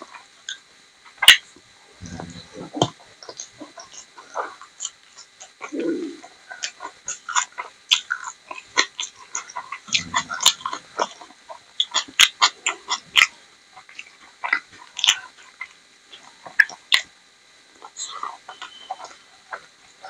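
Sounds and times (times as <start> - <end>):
lip and tongue smacking clicks: 0.5 - 17.1
low hum: 1.8 - 2.9, 9.9 - 11.3
wet chewing: 2.0 - 17.1, 17.8 - 20.0.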